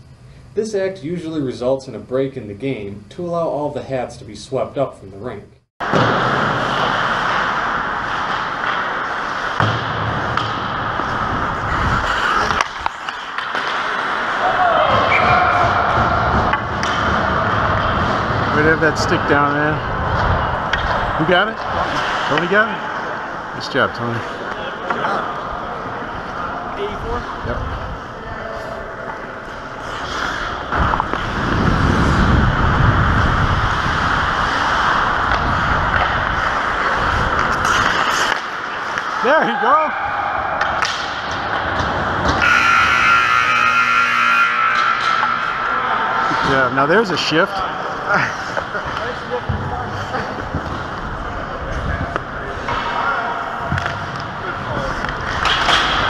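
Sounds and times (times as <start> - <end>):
skate blades on ice: 5.8 - 19.1, 29.6 - 39.9
wind across microphone: 11.1 - 12.9, 30.6 - 37.6.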